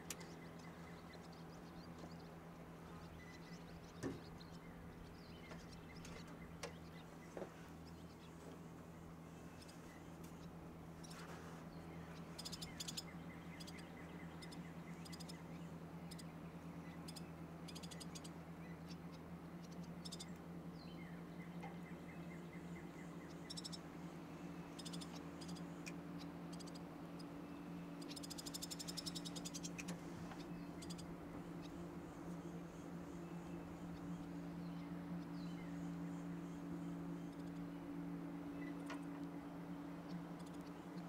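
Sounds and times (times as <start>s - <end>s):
steady low hum: 0.0s - 41.0s
frogs chirping and clicking: 12.4s - 15.4s, 19.7s - 20.4s, 23.3s - 23.8s, 24.8s - 27.3s, 28.0s - 29.9s, 30.8s - 31.8s, 37.3s - 37.6s, 40.1s - 41.0s.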